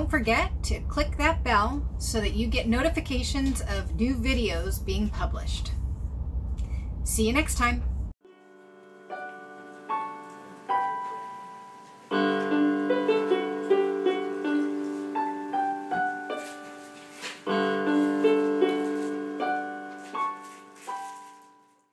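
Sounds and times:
piano music: 0:08.2 - 0:21.9.

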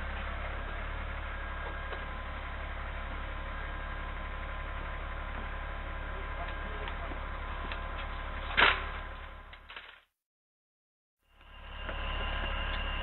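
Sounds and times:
faint steady tones: 0:11.3 - 0:13.0
low hum: 0:11.3 - 0:13.0.

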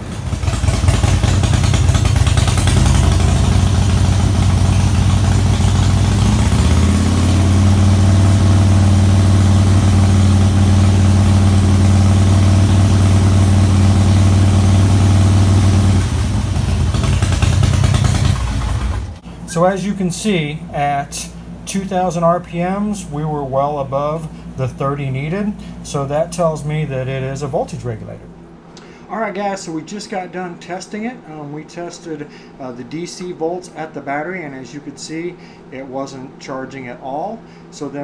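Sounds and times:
motorcycle engine running: 0:00.0 - 0:28.6.

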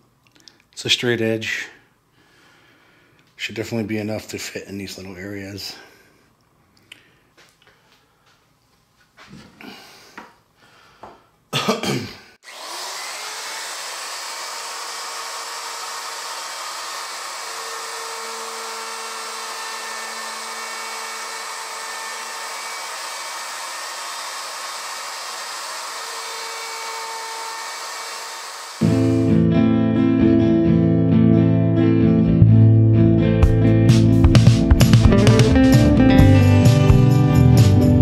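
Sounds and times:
router cutting wood: 0:12.4 - 0:29.4.

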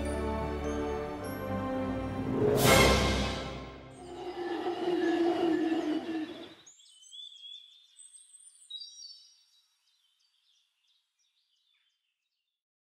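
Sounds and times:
background music: 0:00.0 - 0:06.4
whistled bird calls and chirps: 0:04.1 - 0:12.4.

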